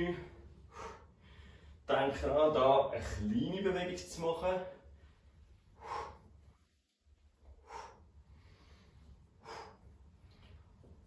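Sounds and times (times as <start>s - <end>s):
man's faint breaths: 0.3s - 1.9s, 4.8s - 11.0s.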